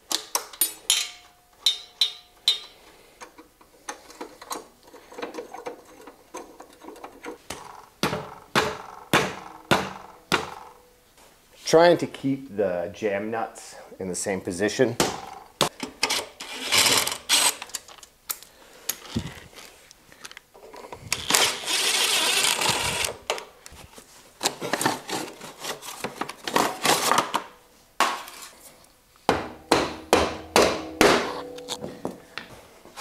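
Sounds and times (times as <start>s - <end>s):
tools clicking and knocking: 0.0s - 10.8s, 29.7s - 32.2s.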